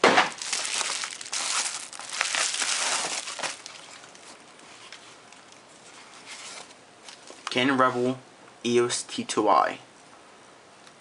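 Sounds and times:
bubble wrap crinkling and rustling: 0.2s - 7.5s.

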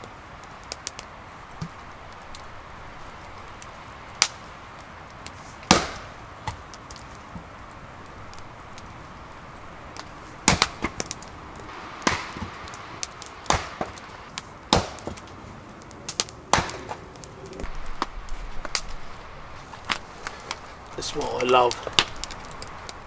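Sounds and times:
axe chopping logs: 5.6s - 6.6s, 10.4s - 11.2s, 12.0s - 14.0s, 14.7s - 15.4s, 16.1s - 17.0s.

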